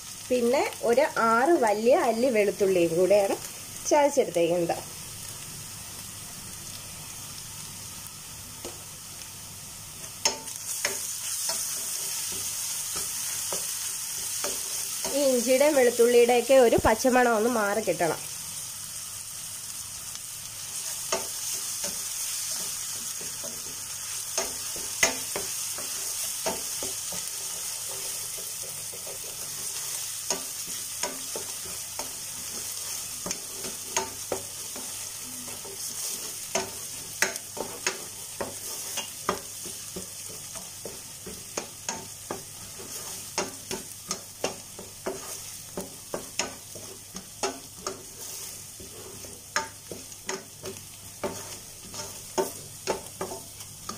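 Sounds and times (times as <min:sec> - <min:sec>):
onions sizzling in oil: 0:00.0 - 0:53.9
spatula scraping and knocking pan: 0:10.2 - 0:15.7, 0:20.8 - 0:53.9.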